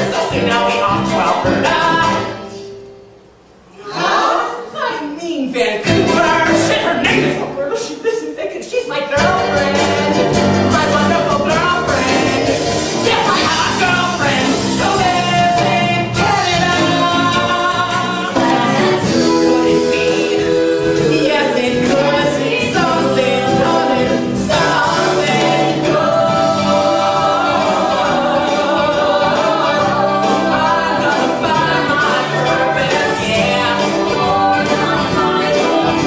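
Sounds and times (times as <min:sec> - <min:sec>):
voices singing together: 0:00.0 - 0:02.7, 0:03.7 - 0:04.8, 0:05.9 - 0:07.5, 0:09.1 - 0:36.0
instrumental accompaniment: 0:09.2 - 0:36.0.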